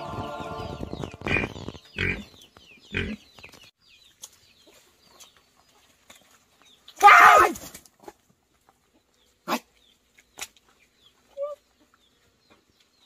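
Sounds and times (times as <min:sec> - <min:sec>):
background music: 0:00.0 - 0:02.2.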